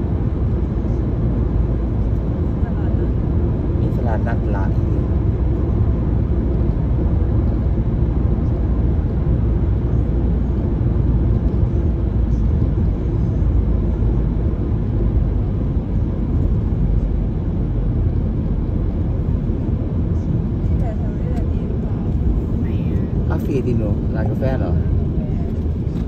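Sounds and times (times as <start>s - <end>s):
car interior road rumble: 0.0s - 26.0s.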